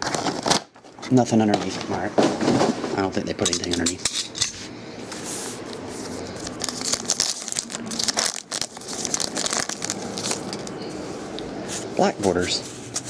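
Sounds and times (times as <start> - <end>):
card pack wrapper tearing and crinkling: 6.5 - 10.7.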